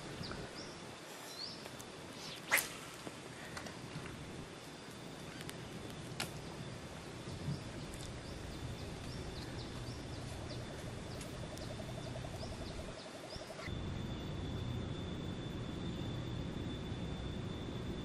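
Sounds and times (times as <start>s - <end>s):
background hiss: 0.0s - 18.0s
bird chirping: 0.2s - 2.5s, 6.4s - 14.3s
rapid low trill: 8.2s - 18.0s
steady high tone: 8.2s - 18.0s.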